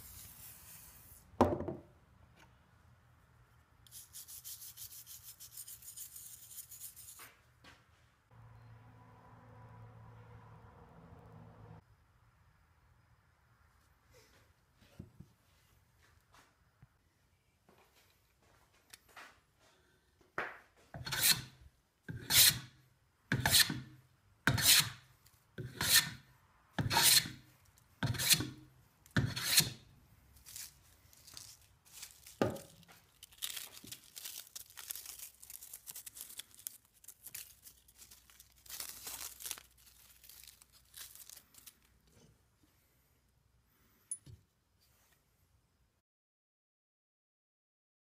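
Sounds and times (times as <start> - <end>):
hand plane scraping wood: 21.0 - 22.7, 23.3 - 23.9, 24.5 - 25.0, 25.6 - 26.2, 26.8 - 27.4, 28.0 - 28.6, 29.2 - 29.8.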